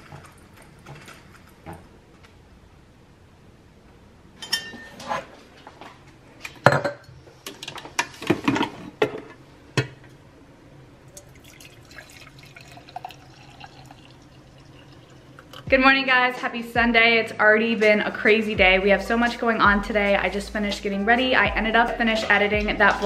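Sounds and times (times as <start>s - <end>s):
glass and ceramic clinking: 4.4s - 5.0s
coffee pouring into mug: 11.1s - 15.7s.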